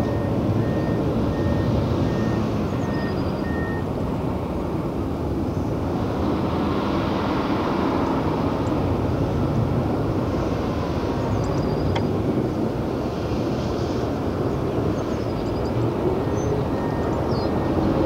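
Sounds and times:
reversing alarm beeping: 0.0 - 3.9, 16.2 - 17.9
diesel machinery rumbling: 0.0 - 18.0.

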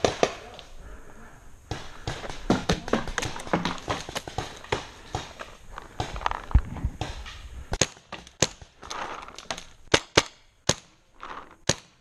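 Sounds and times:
rustling: 8.6 - 9.9, 11.1 - 11.7.

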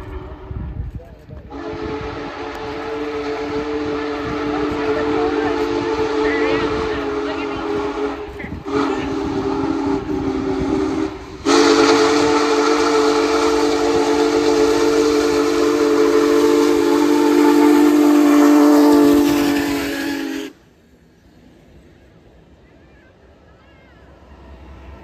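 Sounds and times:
steam whistle chord: 1.5 - 20.6
steam hissing: 1.5 - 21.0.

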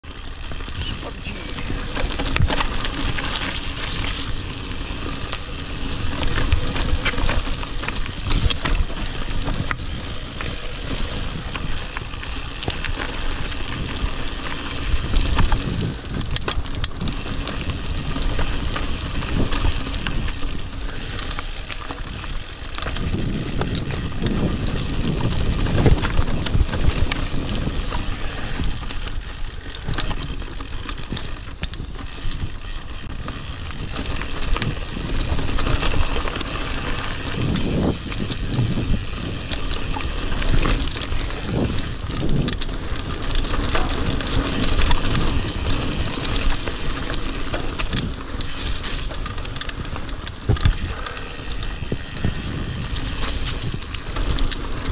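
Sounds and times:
tyres rumbling over dirt and stones: 0.0 - 54.9
bike knocks and rattles: 0.3 - 54.9
wind on microphone: 22.1 - 30.2, 31.1 - 42.8, 50.3 - 54.9.

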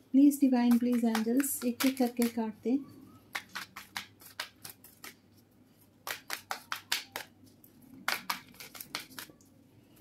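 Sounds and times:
cards being shuffled: 3.3 - 5.4, 6.0 - 9.4.

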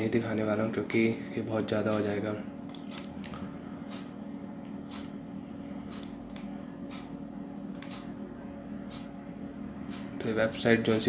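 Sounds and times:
low electrical hum: 0.0 - 11.0
computer mouse clicks: 2.7 - 4.1, 4.9 - 5.2, 5.9 - 7.1, 7.7 - 8.1.

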